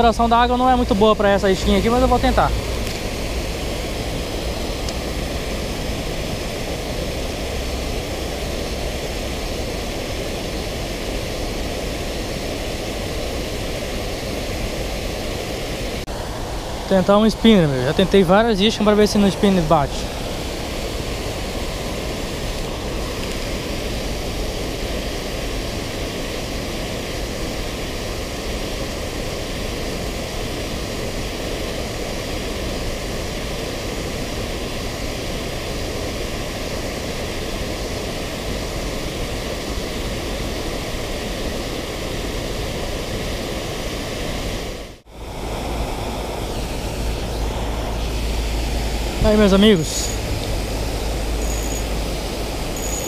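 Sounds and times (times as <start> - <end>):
water rushing over a weir: 0.0 - 53.0.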